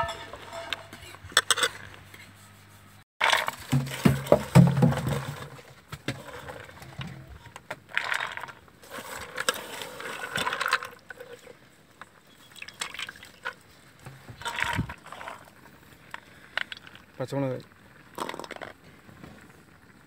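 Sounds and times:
wet lentils rattling in steel bowl: 3.2s - 6.8s, 7.6s - 11.4s, 12.6s - 17.5s, 18.2s - 18.8s.

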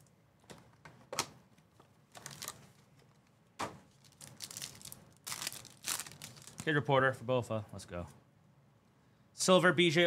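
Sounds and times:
foil wrapper crackling: 2.2s - 2.7s, 4.0s - 6.7s.

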